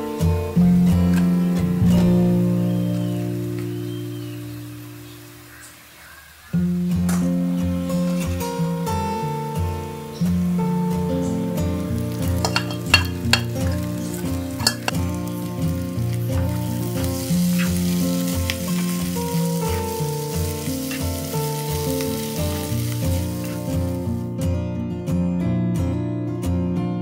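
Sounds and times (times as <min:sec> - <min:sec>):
clams and onions sizzling in pan: 0:00.0 - 0:24.3.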